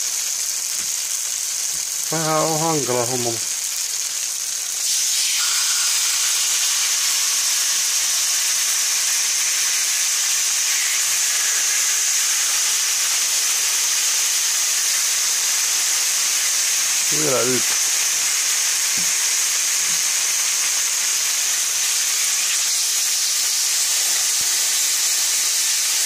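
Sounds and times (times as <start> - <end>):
meat sizzling in a frying pan: 0.0 - 26.0.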